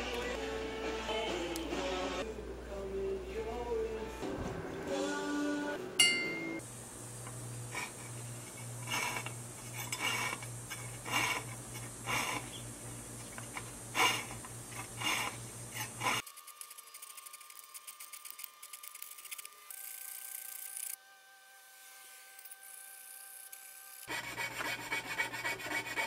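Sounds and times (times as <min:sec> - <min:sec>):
low steady hum: 0:00.0 - 0:19.7
hand saw rasping through metal: 0:08.8 - 0:12.6, 0:14.0 - 0:16.2, 0:24.0 - 0:26.0.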